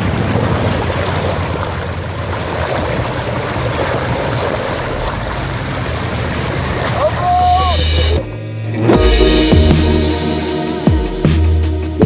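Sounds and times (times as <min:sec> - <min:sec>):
river water rushing and splashing: 0:00.0 - 0:08.3
vehicle engine running low: 0:00.0 - 0:08.4.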